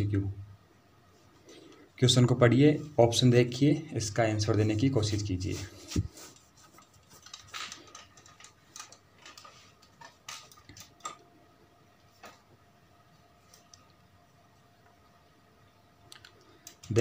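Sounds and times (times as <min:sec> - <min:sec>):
faint clicks: 0:16.1 - 0:17.0.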